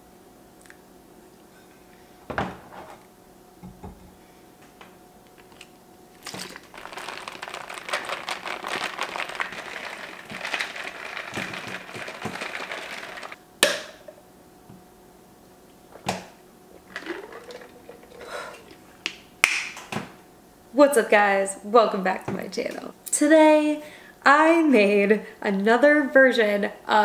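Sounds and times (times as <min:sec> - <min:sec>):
plastic shaker bottle rattling: 0:05.4 - 0:13.4, 0:16.8 - 0:18.8.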